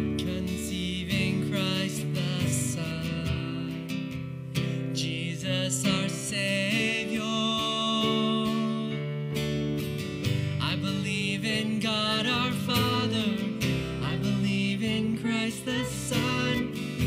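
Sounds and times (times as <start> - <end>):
man singing: 0.0 - 4.1, 4.7 - 9.4, 10.6 - 17.0
electric bass: 0.0 - 5.1, 11.6 - 17.0
acoustic guitar strumming: 0.0 - 17.0
keyboard: 0.0 - 17.0.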